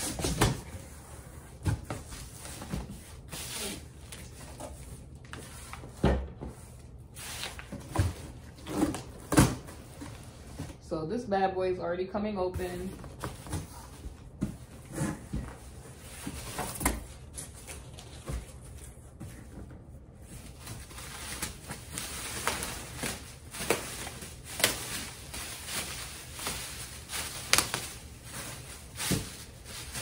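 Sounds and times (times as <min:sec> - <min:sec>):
plastic sheet rustling and crinkling: 0:20.2 - 0:30.0.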